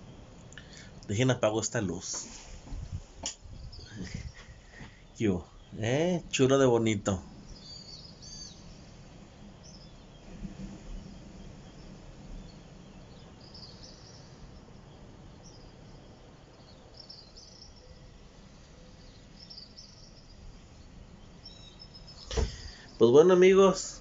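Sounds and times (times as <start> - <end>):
faint low rumble: 0.0 - 24.0
small birds chirping: 0.0 - 24.0.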